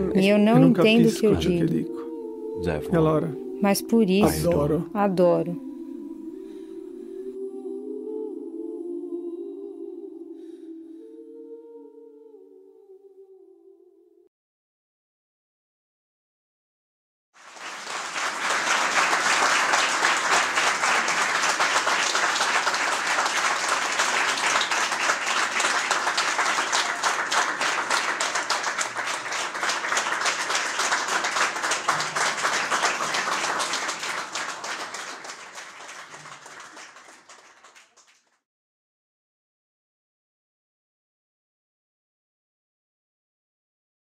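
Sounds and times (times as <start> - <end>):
audience applauding: 0.0 - 1.5, 17.4 - 38.3.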